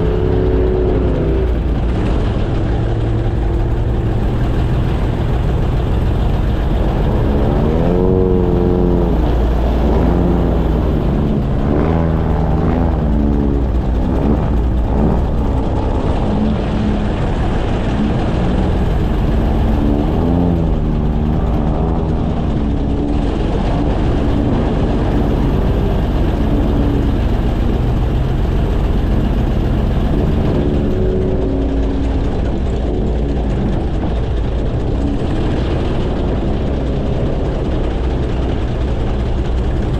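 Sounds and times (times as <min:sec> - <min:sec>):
airboat engine roaring: 0:00.0 - 0:39.9.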